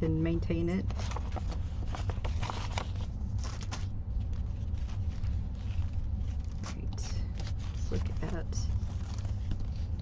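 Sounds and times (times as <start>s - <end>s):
steady low hum: 0.0s - 10.0s
paper and canvas rustling: 0.8s - 10.0s.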